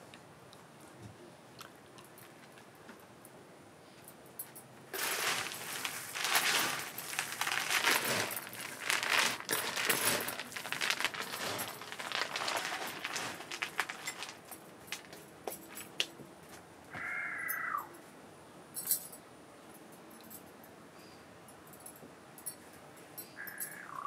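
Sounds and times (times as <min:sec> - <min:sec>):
dense crackling and crinkling: 0:04.9 - 0:16.1.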